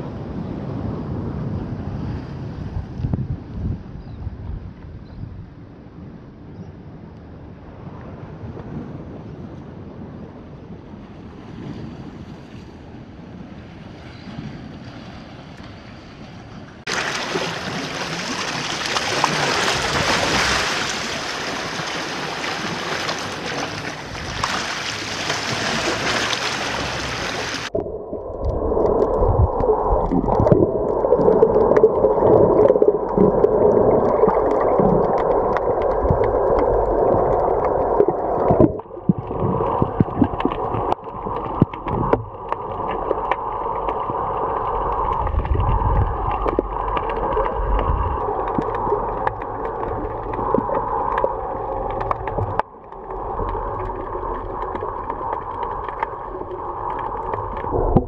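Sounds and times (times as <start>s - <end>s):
faint wind: 0.0s - 58.0s
waves splashing over rocks: 14.4s - 58.0s
muffled underwater rushing: 16.8s - 58.0s.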